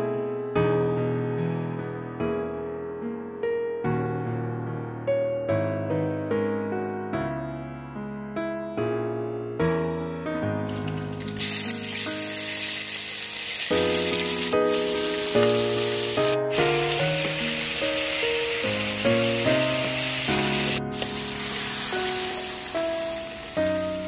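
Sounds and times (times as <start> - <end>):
background music: 10.5 - 24.0
vegetables sizzling in frying pan: 10.7 - 24.0.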